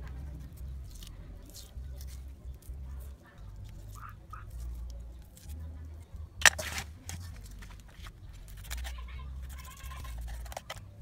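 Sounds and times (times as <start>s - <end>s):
knife scraping fish on board: 6.4s - 10.8s.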